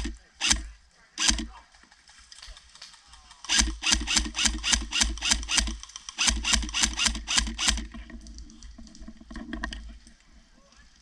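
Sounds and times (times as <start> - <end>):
airsoft rifle firing: 3.4 - 7.9
gearbox motor humming: 3.5 - 7.9.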